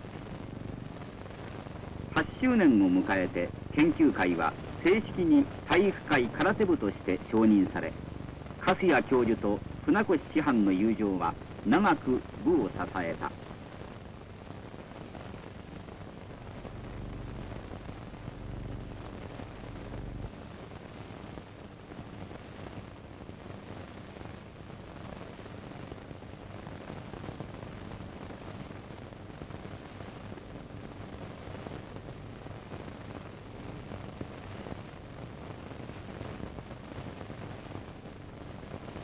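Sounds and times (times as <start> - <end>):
film soundtrack hiss: 0.0 - 39.0
low hum: 16.3 - 20.4.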